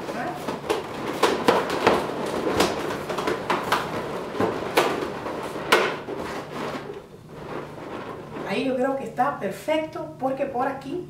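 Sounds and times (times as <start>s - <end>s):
balloons squeaking and rubbing: 0.0s - 8.7s.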